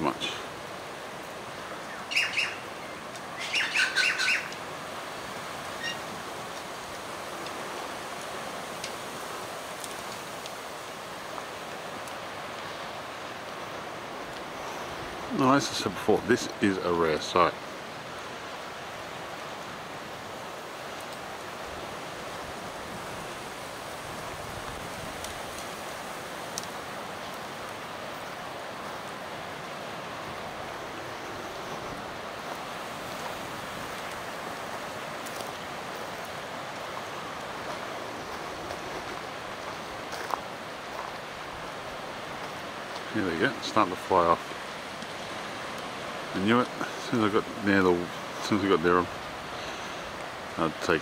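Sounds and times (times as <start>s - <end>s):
wind blowing through trees: 0.0s - 51.0s
faint clicks: 26.5s - 27.4s
faint ticks: 26.5s - 28.3s.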